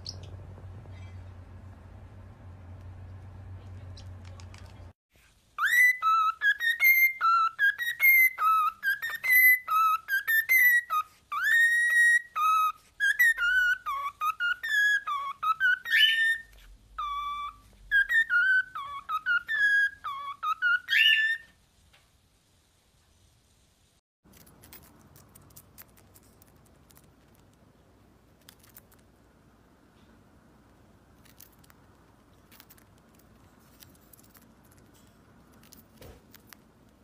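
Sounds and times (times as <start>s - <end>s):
cockatiel whistling: 5.6s - 21.6s.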